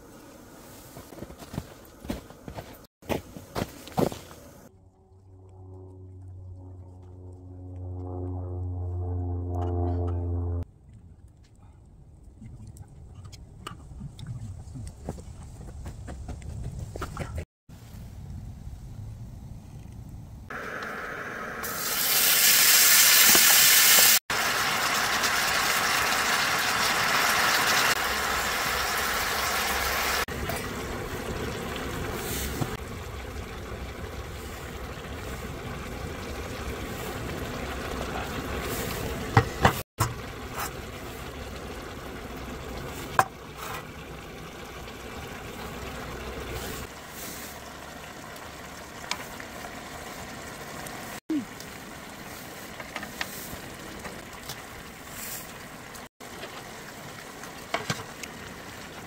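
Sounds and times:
food sizzling on a griddle: 21.6s - 30.3s.

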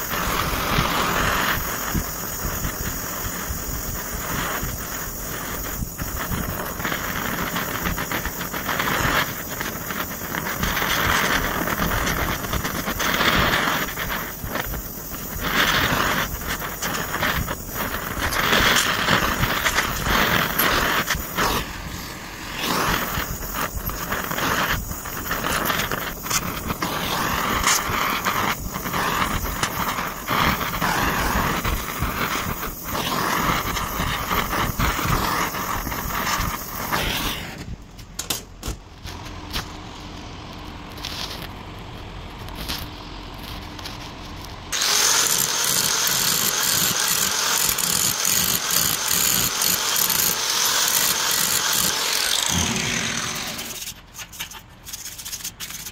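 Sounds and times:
welding crackling sizzle: 0.0s - 55.9s
angle grinder grinding metal: 44.7s - 54.0s.

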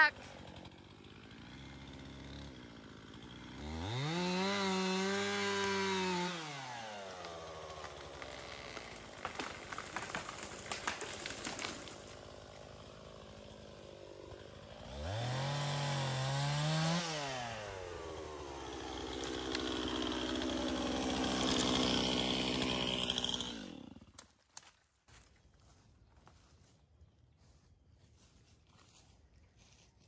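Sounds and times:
chainsaw running and revving: 0.0s - 24.3s
wood cracking and snapping: 6.9s - 13.7s, 19.0s - 24.7s
tree crashing through branches: 7.1s - 12.4s.

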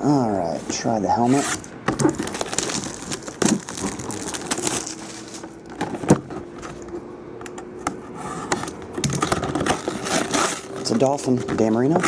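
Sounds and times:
plastic wrap crackling: 1.9s - 6.0s, 9.2s - 11.3s.

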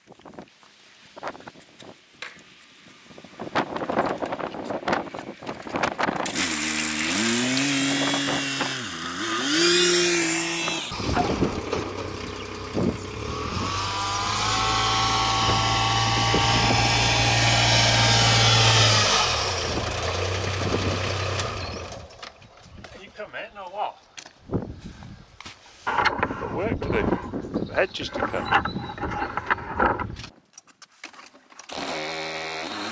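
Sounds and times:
diesel engine revving: 6.2s - 22.1s.

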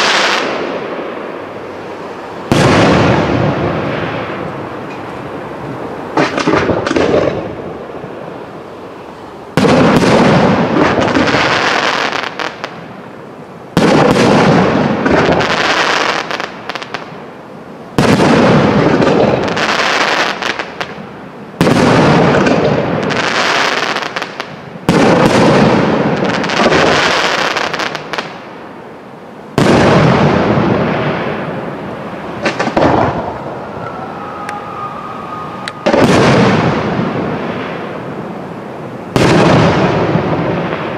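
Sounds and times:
fireworks bursting with crackle: 0.0s - 8.3s, 9.5s - 13.0s, 13.7s - 17.3s, 17.9s - 28.6s, 29.5s - 40.9s
thin whistling tone: 33.3s - 36.0s.

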